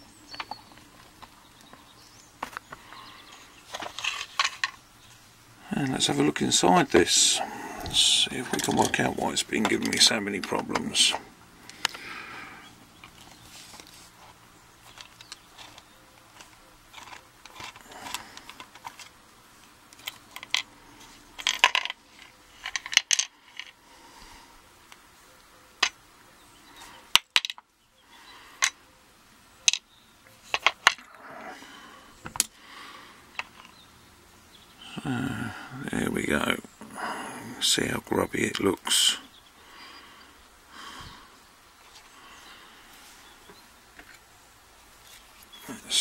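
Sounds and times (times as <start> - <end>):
small metal lock parts clinking: 14.8 - 19.2, 19.9 - 20.7, 21.4 - 23.8.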